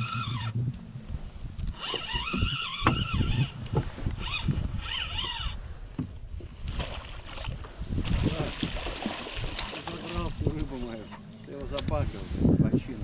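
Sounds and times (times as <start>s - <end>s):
spinning reel whirring: 0.0s - 0.6s, 1.7s - 5.6s.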